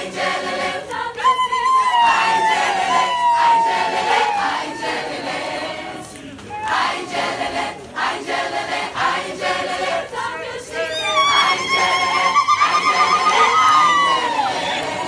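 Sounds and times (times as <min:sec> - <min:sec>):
crowd singing in chorus: 0:00.0 - 0:15.0.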